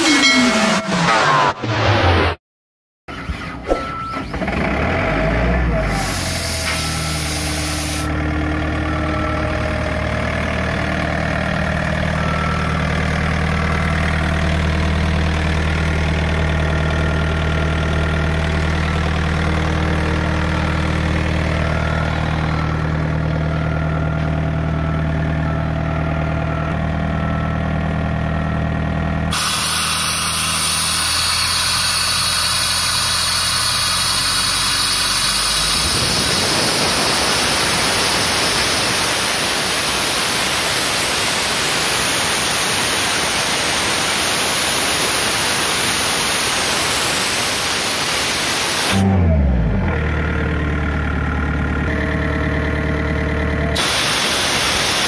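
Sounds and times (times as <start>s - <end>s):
diesel engine idling: 4.5s - 41.0s, 49.0s - 55.0s
loud steady hiss: 29.4s - 49.0s, 53.8s - 55.0s.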